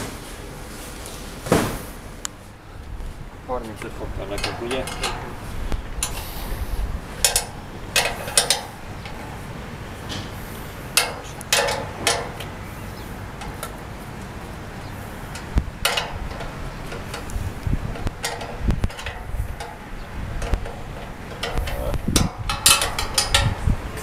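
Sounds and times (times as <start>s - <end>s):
low steady rumble: 0.0s - 24.0s
metal bracket clinking: 4.2s - 6.3s, 7.2s - 12.6s, 15.3s - 24.0s.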